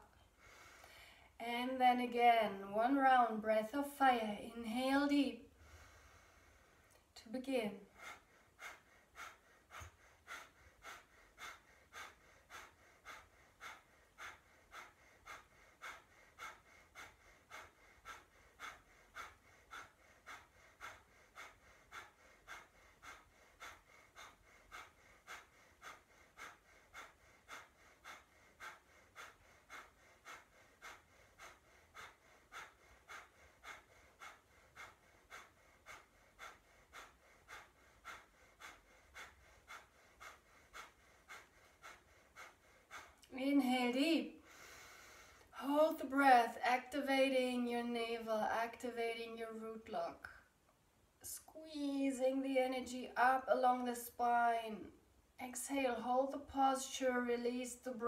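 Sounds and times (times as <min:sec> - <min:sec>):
quick breath puffs through nose: 0:05.5 - 0:07.1, 0:07.9 - 0:43.3, 0:44.3 - 0:45.6.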